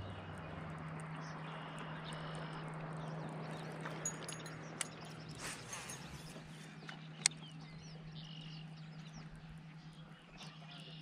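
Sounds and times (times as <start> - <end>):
birds chirping: 0.0 - 11.0
steady low hum: 0.0 - 11.0
sharp clicks: 6.8 - 7.5.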